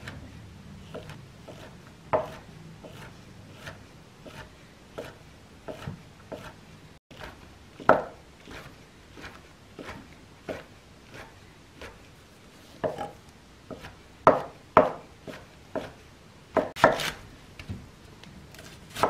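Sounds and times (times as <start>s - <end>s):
knife chopping on wooden board: 0.9s - 12.0s, 12.8s - 16.0s, 16.6s - 17.2s.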